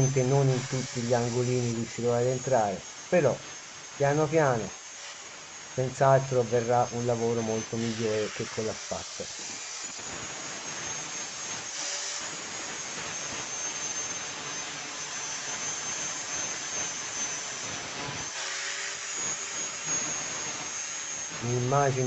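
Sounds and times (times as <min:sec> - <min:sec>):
angle grinder grinding metal: 0:00.0 - 0:22.0.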